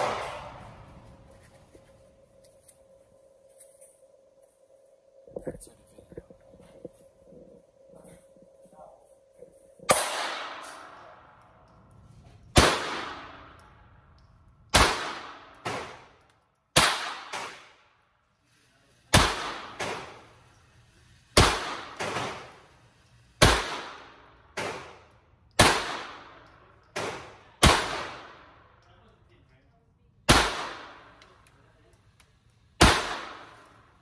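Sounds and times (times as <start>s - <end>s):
pistol shots echoing indoors: 0.0s - 0.8s, 9.9s - 11.9s, 12.5s - 18.2s, 19.1s - 20.5s, 21.2s - 22.8s, 23.4s - 28.9s, 30.2s - 31.5s, 32.7s - 34.0s.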